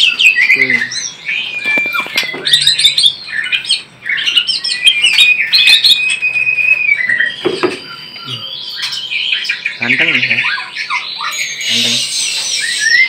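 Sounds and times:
bird singing chirps and whistles: 0:00.0 - 0:13.0
sharp knocks: 0:07.4 - 0:07.9.

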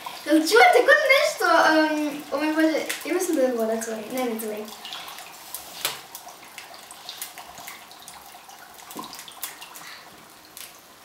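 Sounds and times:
dry ice bubbling in water: 0:00.0 - 0:11.0
crackles and pops: 0:02.0 - 0:08.2, 0:08.8 - 0:10.8.

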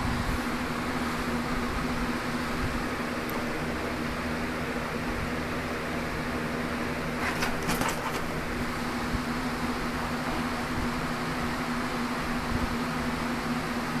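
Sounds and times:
mechanical hum: 0:00.0 - 0:14.0
brief rustling scuffle: 0:07.2 - 0:08.5.

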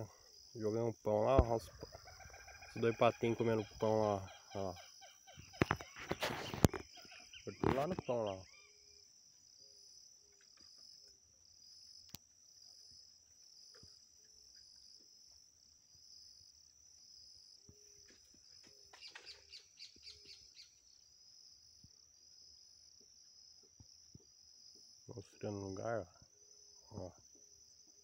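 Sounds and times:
bird chirps: 0:00.0 - 0:11.1, 0:17.3 - 0:21.1
insects chirping: 0:00.0 - 0:28.0.

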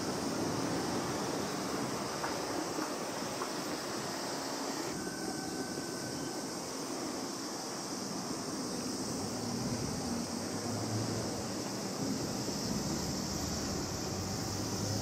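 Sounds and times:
distant town traffic: 0:00.0 - 0:15.0.

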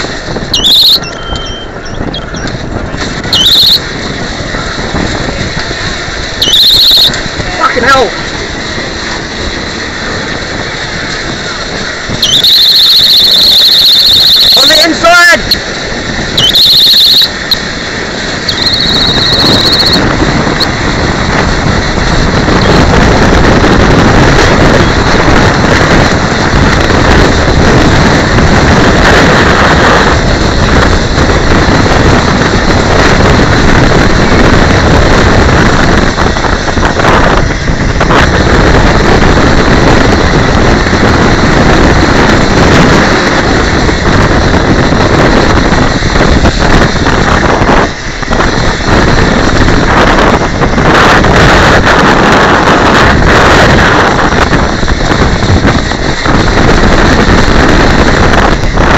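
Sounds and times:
rolling and wind noise: 0:00.0 - 0:58.9
high-pitched squeal: 0:00.5 - 0:02.5, 0:03.3 - 0:03.8, 0:06.4 - 0:07.2, 0:12.2 - 0:15.6, 0:16.4 - 0:17.6, 0:18.4 - 0:20.7.

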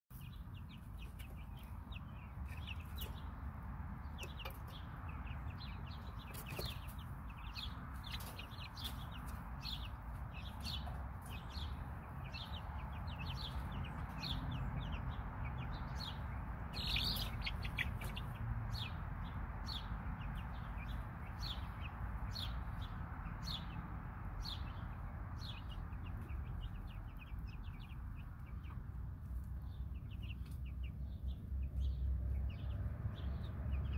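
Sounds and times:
chicks peeping: 0:00.1 - 0:33.9.

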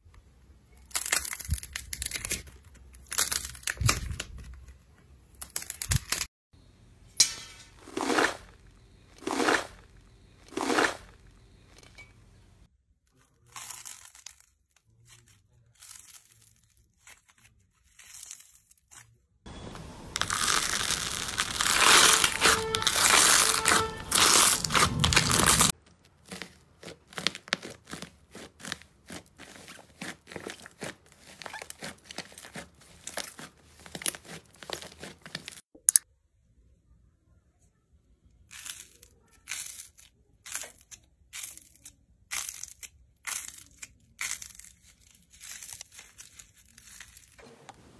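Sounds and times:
slime crackling and popping: 0:20.1 - 0:35.6.

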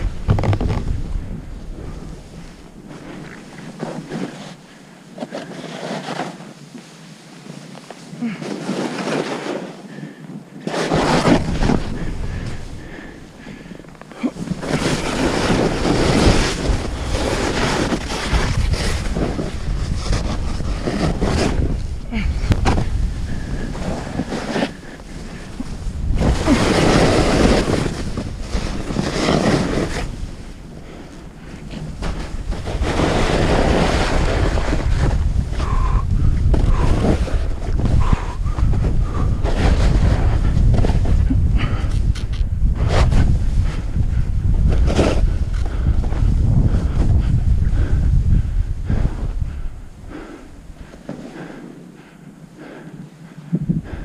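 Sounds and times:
wind buffeting microphone: 0:00.0 - 0:04.3, 0:10.9 - 0:54.0
ski edges scraping snow: 0:01.8 - 0:10.0, 0:10.6 - 0:35.8, 0:36.7 - 0:41.3, 0:44.6 - 0:46.4.

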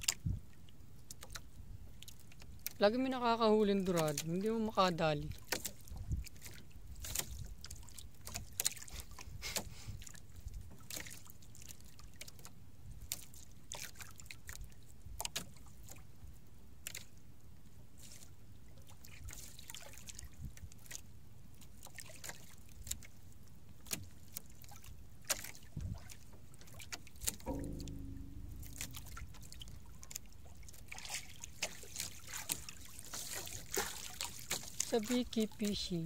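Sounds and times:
small splashes and clicks: 0:00.0 - 0:02.9, 0:03.7 - 0:16.1, 0:16.8 - 0:17.2, 0:18.0 - 0:36.0
water lapping against boat hull: 0:00.0 - 0:36.0
low wind rumble: 0:27.4 - 0:32.3.

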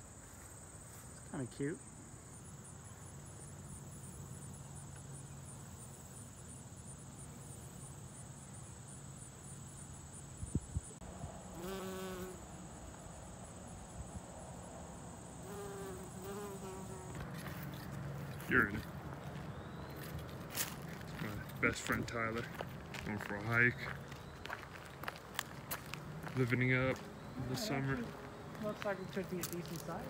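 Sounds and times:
high-pitched insect trill: 0:00.0 - 0:18.1
bumblebee buzzing: 0:11.3 - 0:12.7, 0:15.4 - 0:17.7.

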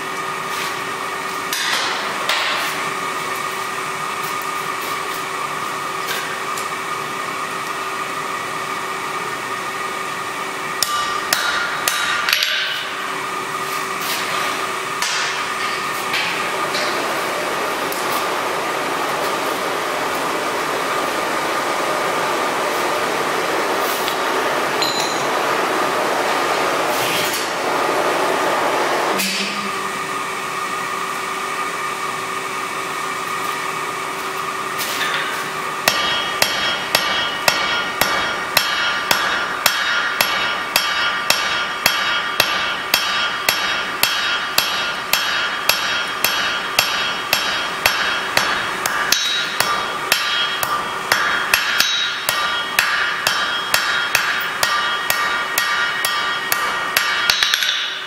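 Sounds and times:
hammer striking steel on anvil: 0:01.5 - 0:02.9, 0:10.8 - 0:13.1, 0:14.1 - 0:17.1, 0:24.8 - 0:25.5, 0:29.2 - 0:29.8, 0:34.9 - 0:58.0.

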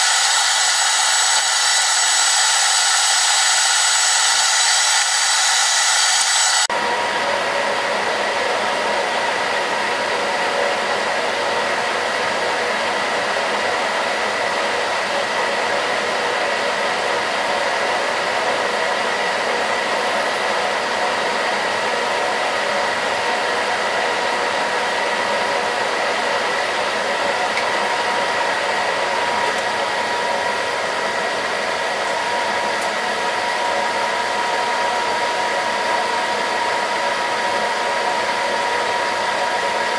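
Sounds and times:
metal lathe humming and whining: 0:00.0 - 0:09.2.

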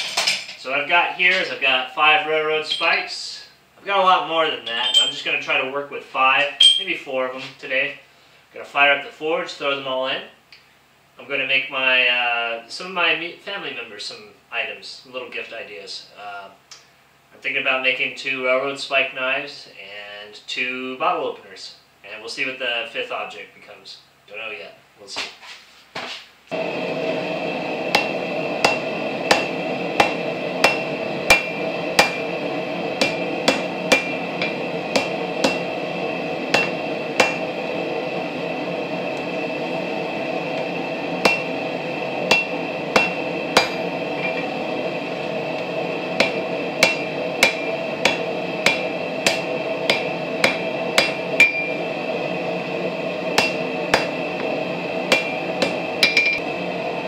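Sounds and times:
hammer ringing on anvil: 0:02.6 - 0:03.0, 0:04.6 - 0:05.3, 0:06.6 - 0:07.0, 0:27.9 - 0:32.4, 0:33.0 - 0:35.7, 0:36.5 - 0:37.5, 0:41.2 - 0:41.5, 0:42.3 - 0:44.5, 0:46.2 - 0:51.8, 0:53.4 - 0:54.2, 0:55.1 - 0:56.4.

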